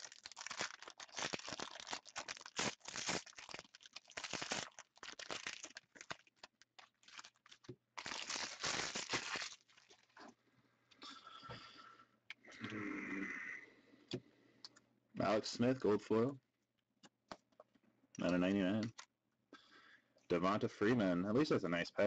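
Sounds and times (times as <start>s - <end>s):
wrapper crinkling and tearing: 0.0s - 10.2s.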